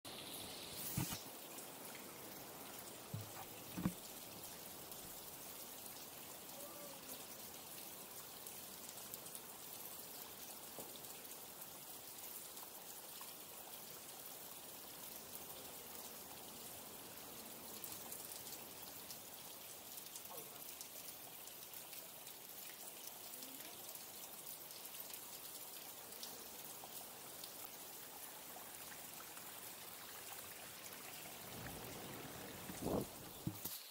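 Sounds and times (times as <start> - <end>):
trickle of flowing water: 0.1 - 33.9
short thump: 3.1 - 4.0.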